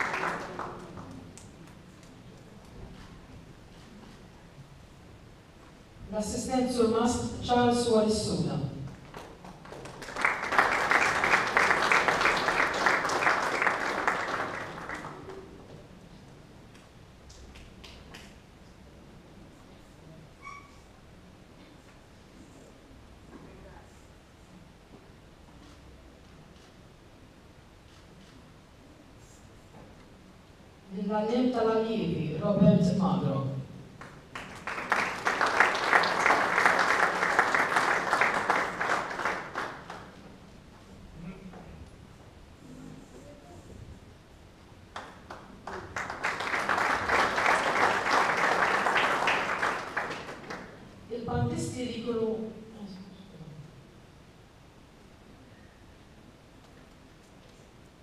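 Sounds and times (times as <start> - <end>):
audience applause: 0.0 - 1.4, 9.0 - 15.7, 34.0 - 40.2, 45.0 - 50.9.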